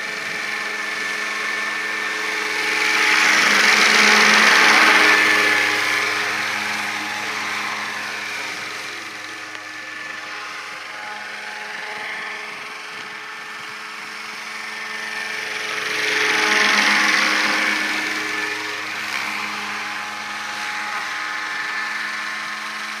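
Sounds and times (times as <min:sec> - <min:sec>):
model helicopter motor and rotors whining: 0:00.0 - 0:23.0.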